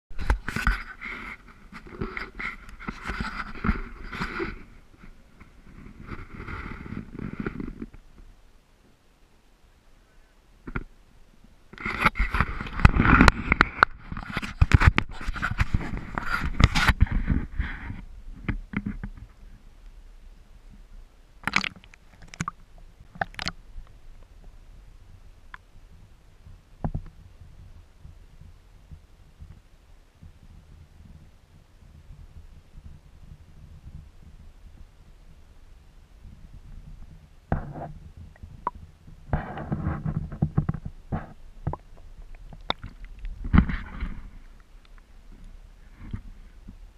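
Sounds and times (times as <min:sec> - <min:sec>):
muffled water sloshing and gurgling: 0:20.7 - 0:29.0
water splashing: 0:21.4 - 0:23.9, 0:41.6 - 0:43.6.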